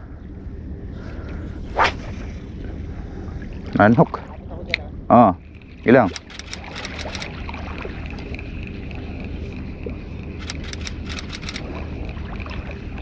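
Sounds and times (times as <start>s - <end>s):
wind rumble on microphone: 0.0s - 6.1s
water noise: 0.2s - 13.0s
quick evenly spaced ticks: 5.4s - 7.4s, 8.2s - 11.6s.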